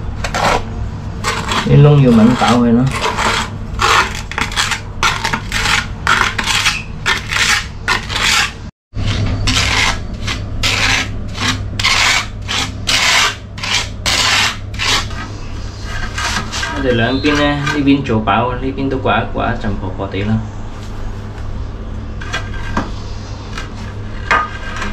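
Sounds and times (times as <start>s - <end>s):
trowel scraping mortar: 0.2s - 0.6s, 1.2s - 18.1s, 23.5s - 24.9s.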